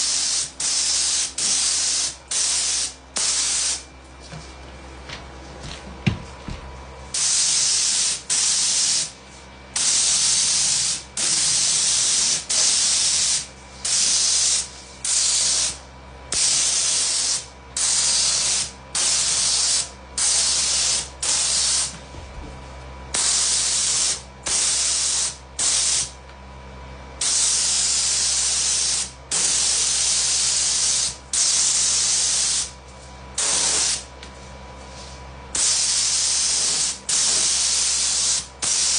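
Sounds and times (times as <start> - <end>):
spray gun hissing bursts: 0.0 - 3.8, 7.1 - 9.1, 9.8 - 21.9, 23.2 - 26.1, 27.2 - 32.8, 33.4 - 34.1, 35.6 - 38.9.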